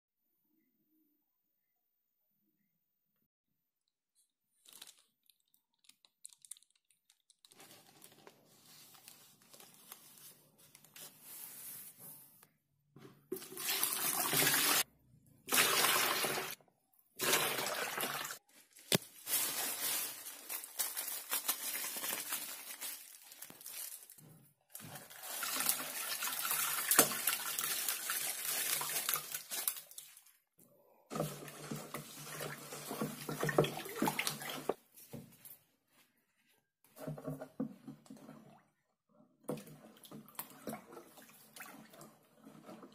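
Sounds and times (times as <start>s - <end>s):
water running and splashing: 13.4s - 14.8s, 15.5s - 16.6s, 17.2s - 18.4s, 24.9s - 30.4s, 31.1s - 34.8s.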